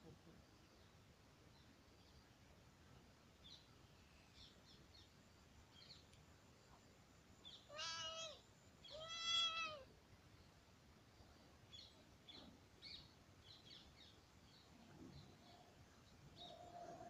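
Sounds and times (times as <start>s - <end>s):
cat meowing: 7.7s - 9.9s.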